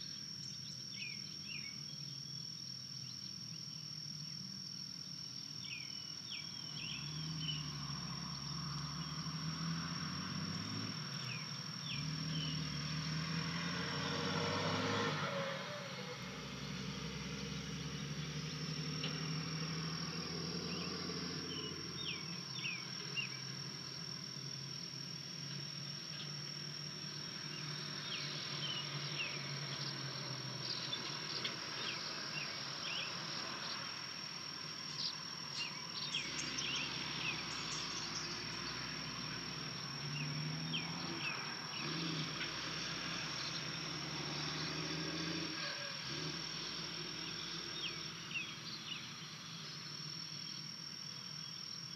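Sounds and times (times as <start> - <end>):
small birds chirping: 0.0 - 9.4, 20.1 - 23.6, 27.4 - 42.6, 47.0 - 51.9.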